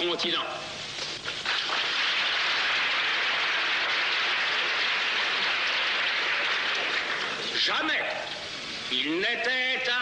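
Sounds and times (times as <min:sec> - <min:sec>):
audience applauding: 0:01.4 - 0:07.5.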